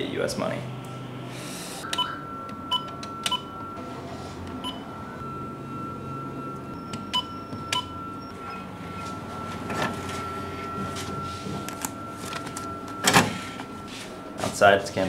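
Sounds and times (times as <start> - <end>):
steady high tone: 0.0 - 15.0
keypad beeps: 1.8 - 3.8, 4.6 - 5.0, 6.0 - 9.1.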